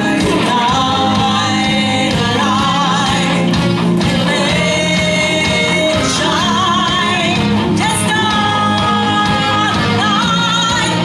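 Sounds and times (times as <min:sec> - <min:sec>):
drum kit: 0:00.0 - 0:11.0
electric guitar: 0:00.0 - 0:11.0
lead singer singing: 0:00.0 - 0:11.0
live rock band playing: 0:00.0 - 0:11.0.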